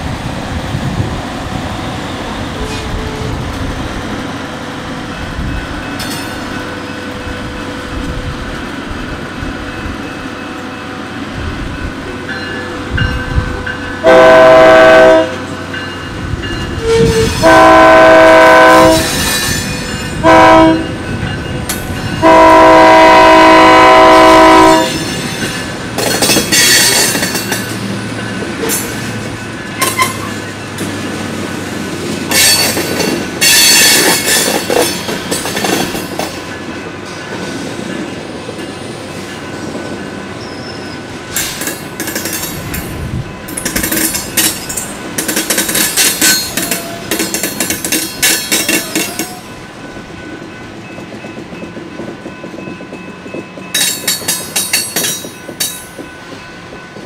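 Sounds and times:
train wheels squealing and clattering: 0:02.4 - 0:03.7, 0:05.4 - 0:07.1, 0:15.4 - 0:17.5, 0:18.9 - 0:20.2, 0:24.8 - 0:57.0
locomotive air horn blasts: 0:14.0 - 0:15.5, 0:16.8 - 0:19.2, 0:20.2 - 0:21.0, 0:22.2 - 0:25.0.

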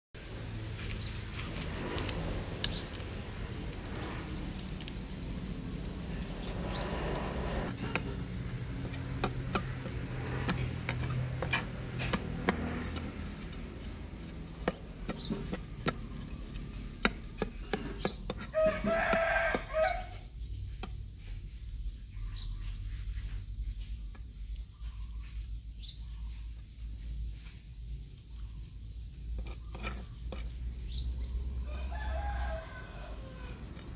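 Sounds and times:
knife scraping fish scales: 0:00.8 - 0:20.1
rooster crowing: 0:18.4 - 0:20.3, 0:31.6 - 0:33.9.

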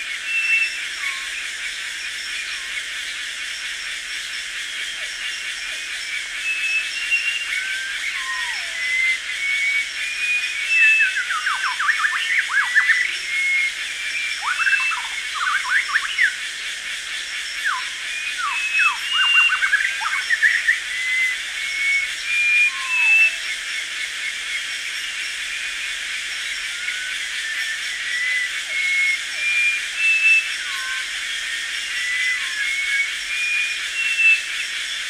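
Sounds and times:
high insect drone: 0:00.0 - 0:35.0
birds calling: 0:05.8 - 0:16.4, 0:17.7 - 0:27.3.

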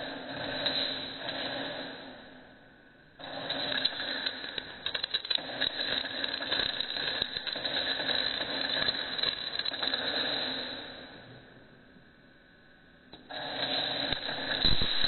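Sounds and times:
electric arc crackling buzz: 0:03.2 - 0:11.3, 0:13.2 - 0:15.0.

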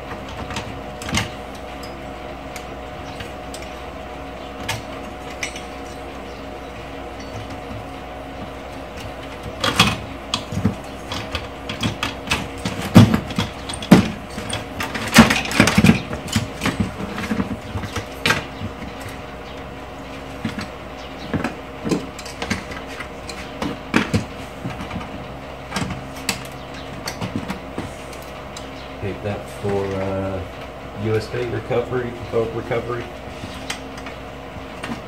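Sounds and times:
electric fan hum: 0:00.0 - 0:35.0
metal and plastic parts clattering: 0:08.9 - 0:19.2, 0:20.4 - 0:27.9.

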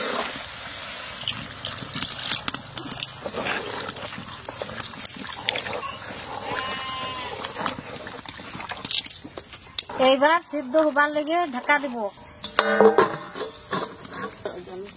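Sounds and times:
meat sizzling and bubbling: 0:00.0 - 0:14.9
spoon scraping a pot: 0:01.3 - 0:09.1.

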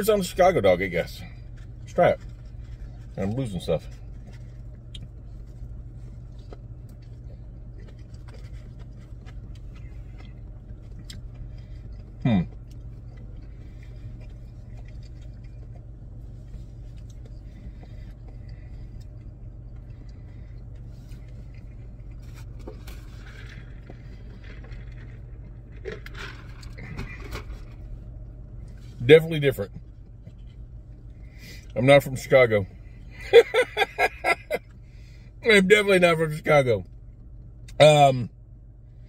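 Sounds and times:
car hum from inside cabin: 0:00.0 - 0:39.0
man chewing: 0:01.4 - 0:28.9.

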